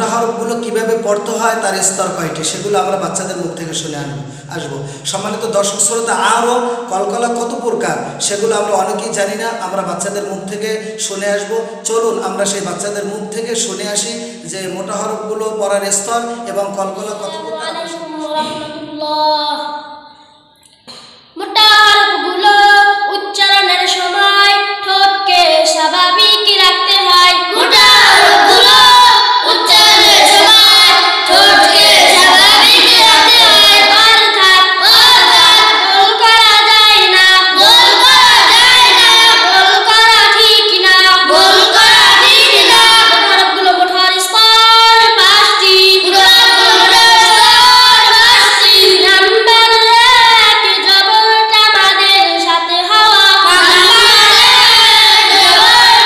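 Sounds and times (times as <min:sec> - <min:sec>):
children chanting: 0:27.3 - 0:43.9, 0:45.0 - 0:50.9, 0:53.0 - 0:56.0.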